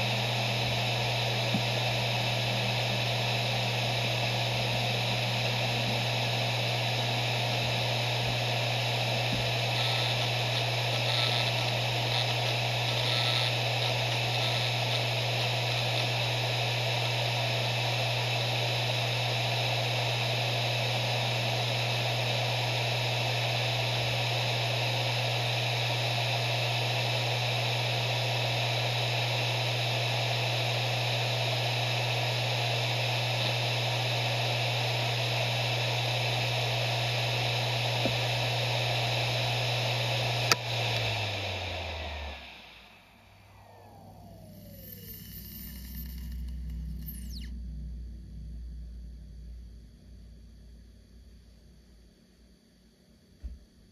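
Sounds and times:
hard drive spinning hum: 0.0s - 51.0s.

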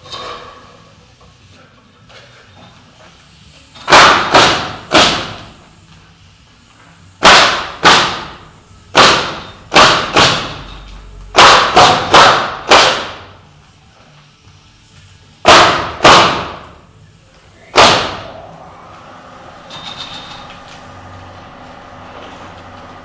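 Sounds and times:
nail gun shots: 3.8s - 5.5s, 7.2s - 10.6s, 11.4s - 13.3s, 15.4s - 16.7s, 17.7s - 18.4s.

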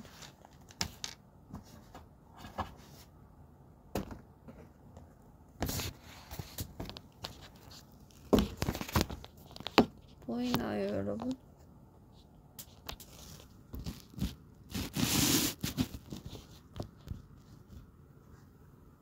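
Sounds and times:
objects knocking and rustling: 5.6s - 10.6s.

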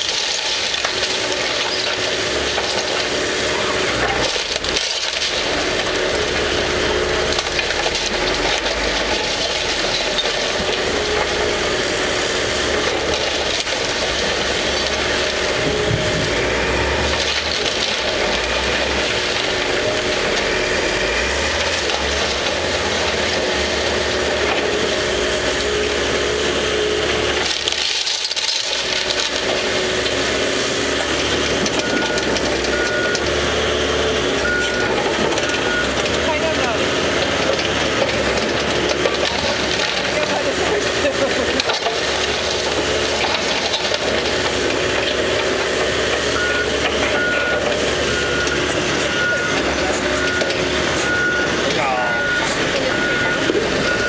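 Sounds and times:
excavator engine running: 0.0s - 54.0s
wood crunching and splintering: 0.0s - 54.0s.

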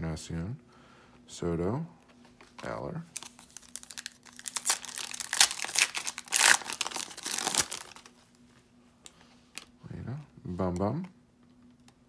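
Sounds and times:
foil wrapper crinkling and tearing: 3.1s - 8.2s.

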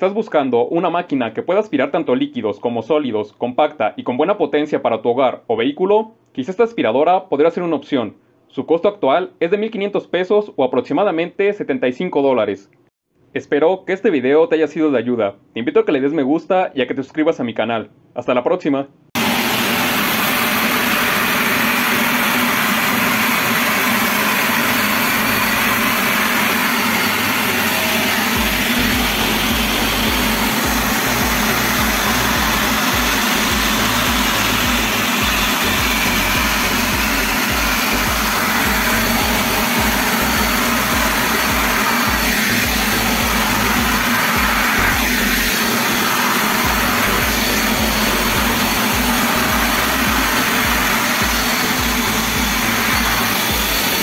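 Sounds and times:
vacuum cleaner running: 19.2s - 54.0s.

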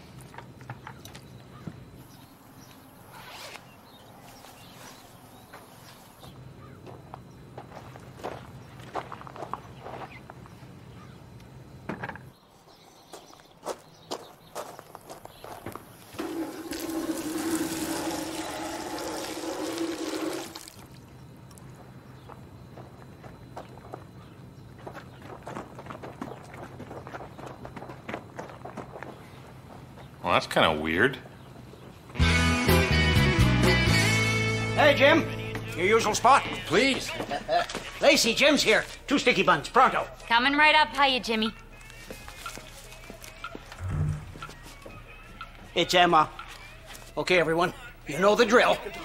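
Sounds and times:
zipper rasp: 3.1s - 3.6s
water poured from bucket splashing: 16.2s - 21.0s
light footsteps: 41.8s - 45.4s.

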